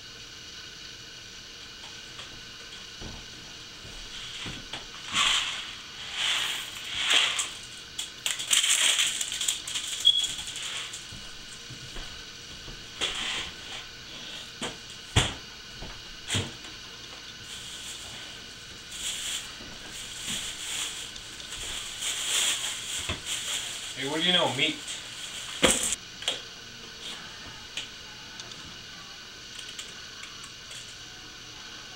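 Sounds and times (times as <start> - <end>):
plastic bag being unwrapped: 6.6 - 11.1, 17.4 - 25.9
packaging crinkling and rustling: 8.2 - 11.0, 18.8 - 25.9.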